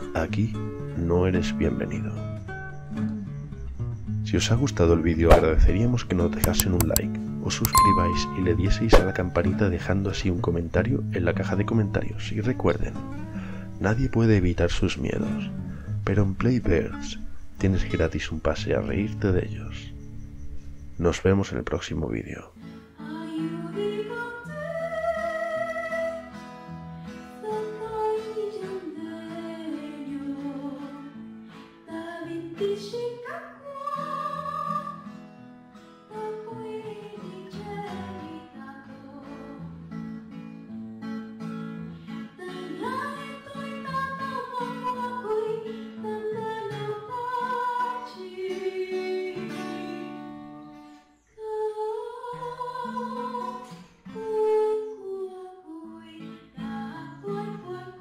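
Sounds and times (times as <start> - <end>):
plucked acoustic guitar: 5.3 - 20.0
person singing: 7.6 - 9.1, 42.4 - 50.1.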